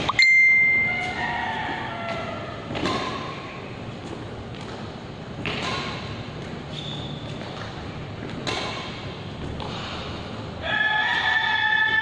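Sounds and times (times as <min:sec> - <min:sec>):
loud steady held tone: 0:00.0 - 0:02.0
racket hitting shuttlecock: 0:00.0 - 0:09.8, 0:11.0 - 0:12.0.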